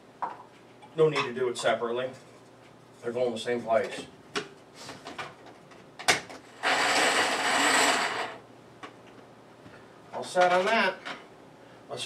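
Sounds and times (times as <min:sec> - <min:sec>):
food chopper running: 0:06.5 - 0:08.4.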